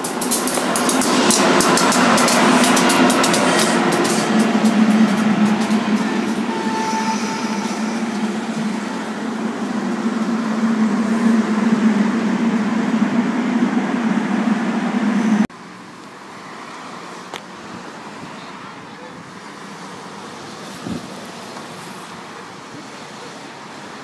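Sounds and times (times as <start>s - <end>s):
low hum of train: 0.0s - 24.0s
outdoor background noise: 0.0s - 24.0s
train wheels rushing on rails: 0.0s - 24.0s.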